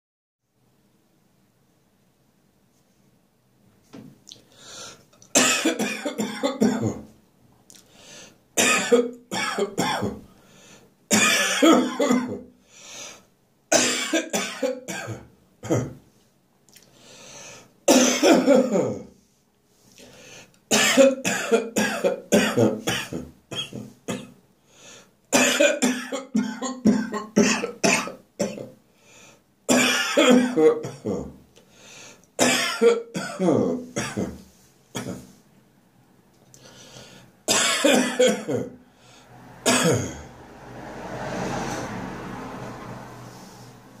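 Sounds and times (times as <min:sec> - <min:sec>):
man coughing: 0:05.3 - 0:07.1, 0:08.6 - 0:10.3, 0:11.1 - 0:12.5, 0:13.7 - 0:16.0, 0:17.9 - 0:19.1, 0:20.7 - 0:24.3, 0:25.3 - 0:28.8, 0:29.7 - 0:31.4, 0:32.4 - 0:34.4, 0:35.0 - 0:35.3, 0:37.5 - 0:38.8, 0:39.7 - 0:40.3.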